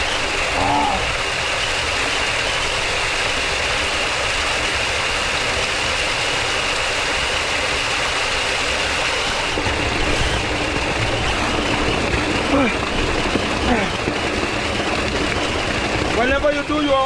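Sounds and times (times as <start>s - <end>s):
water pouring into a pond: 0.0s - 17.0s
low uneven rumble: 9.3s - 17.0s.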